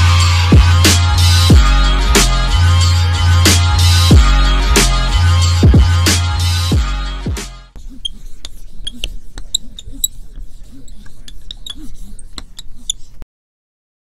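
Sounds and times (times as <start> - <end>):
music: 0.0 - 7.8
marker squeaking on whiteboard: 7.8 - 13.2.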